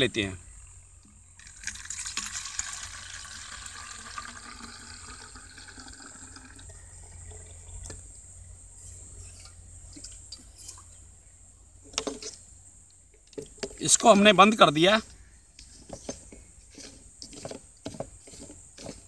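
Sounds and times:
liquid dripping: 0:01.0 - 0:08.0
liquid pouring into bottle: 0:01.4 - 0:08.0.

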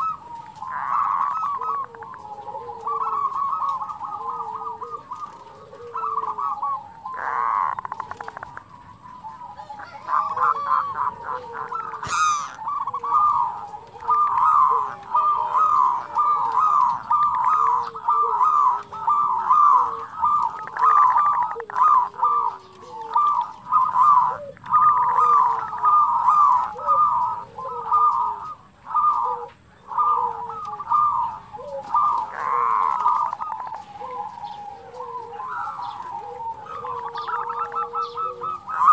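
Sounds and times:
doves cooing: 0:00.0 - 0:38.9
low slurred coos: 0:09.3 - 0:38.9.

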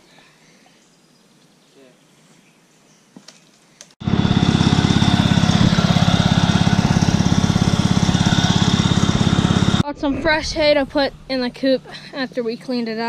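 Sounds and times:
garden tractor engine running: 0:04.0 - 0:09.8.

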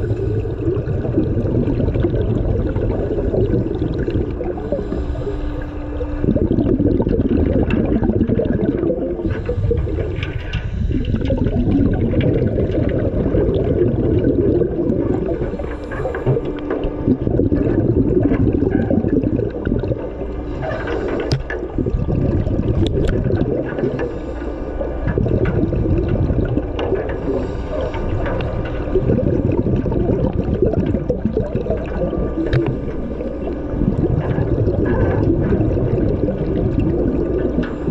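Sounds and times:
regulator exhaust bubbles underwater: 0:00.0 - 0:37.9.

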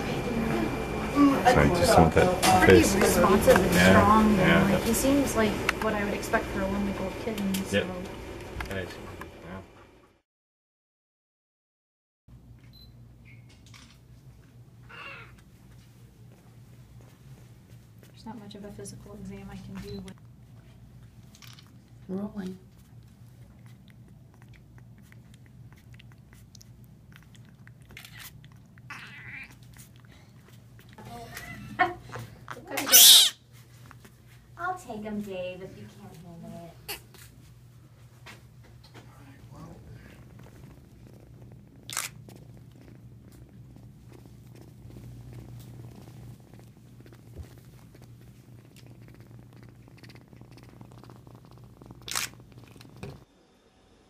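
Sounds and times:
kitten crying: 0:14.9 - 0:15.4, 0:32.8 - 0:33.4
kitten sucking from bottle: 0:22.8 - 0:31.0, 0:39.8 - 0:53.2.

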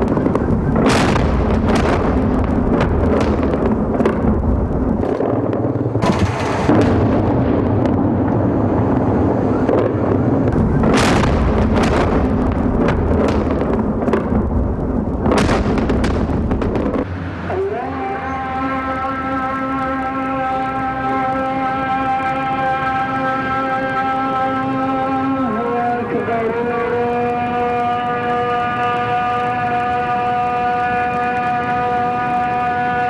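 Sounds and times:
deep rumble of bomb explosions: 0:00.0 - 0:17.2
sharp cracks and bangs: 0:00.0 - 0:17.4
loud blasts: 0:00.0 - 0:33.0.

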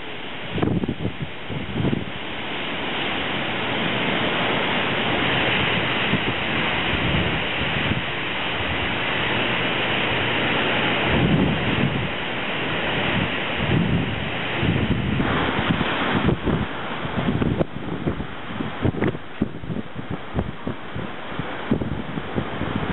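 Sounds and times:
storm wind through trees: 0:00.0 - 0:22.9
wind buffeting microphone: 0:00.0 - 0:22.9.

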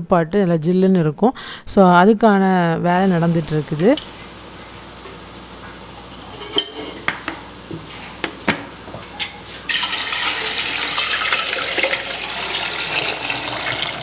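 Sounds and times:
water pouring into steel tin: 0:09.7 - 0:14.0.

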